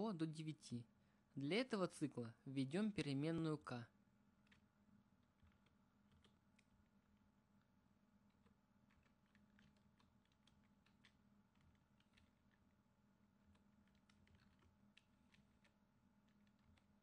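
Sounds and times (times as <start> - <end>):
keyboard typing: 4.4 - 6.8, 8.2 - 12.8, 13.4 - 17.0.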